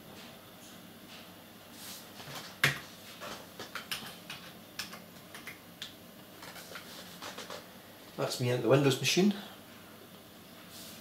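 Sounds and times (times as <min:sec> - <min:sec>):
computer keyboard keys clicking: 0:03.6 - 0:07.6.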